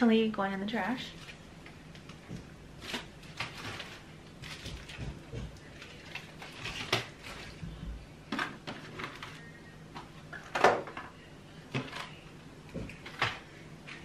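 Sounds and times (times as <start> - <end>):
plastic bag rustling: 1.1 - 9.6
items knocking against wooden shelves: 2.1 - 5.6.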